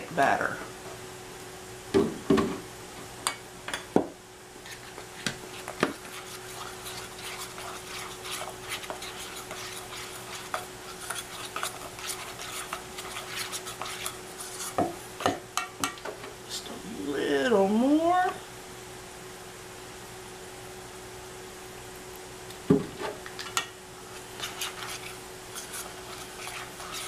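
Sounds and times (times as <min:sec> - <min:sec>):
spoon scraping metal bowl: 0:04.6 - 0:14.9, 0:24.2 - 0:27.0.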